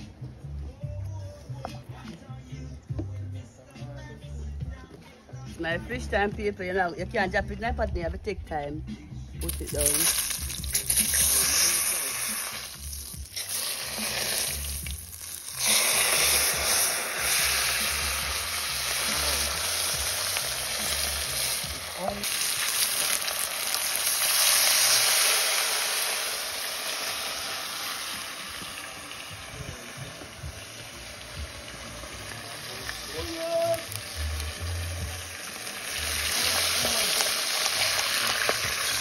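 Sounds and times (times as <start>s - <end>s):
fish sizzling in hot oil: 9.4s - 39.0s.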